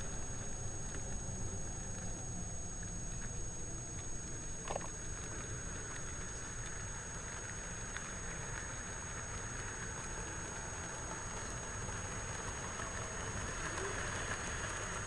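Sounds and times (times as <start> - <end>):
wheels clicking over rail joints: 0.0 - 15.0
model train wagons rumbling: 7.1 - 15.0.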